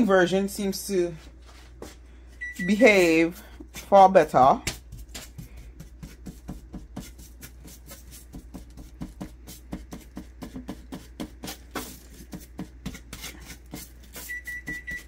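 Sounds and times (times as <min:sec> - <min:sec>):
fork scraping and tapping on baking sheet: 0:03.2 - 0:15.0.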